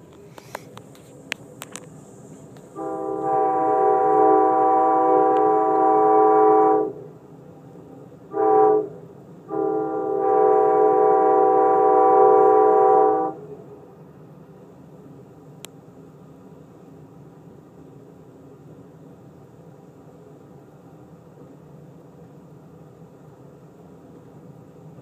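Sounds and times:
train rumbling: 0:00.0 - 0:25.0
train air horn blasts: 0:02.7 - 0:07.1, 0:08.3 - 0:13.7.

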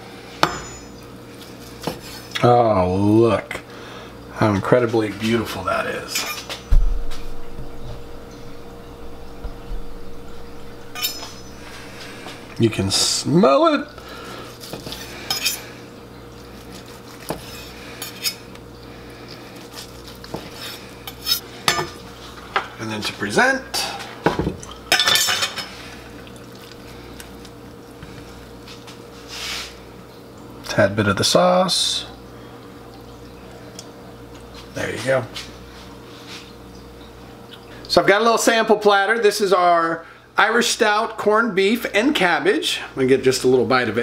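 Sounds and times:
faint steady hum: 0:00.0 - 0:44.0
soft bumps: 0:06.7 - 0:13.1
soft scrape on cutting board: 0:29.2 - 0:29.8.

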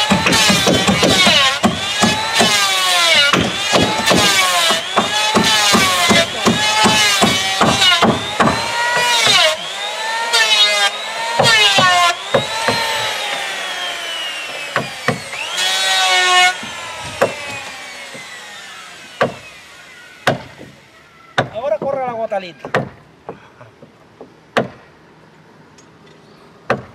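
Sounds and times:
electric planer shaving wood: 0:00.0 - 0:21.0
motor winding down whine: 0:01.8 - 0:21.0
rapid knocks: 0:16.6 - 0:18.4.

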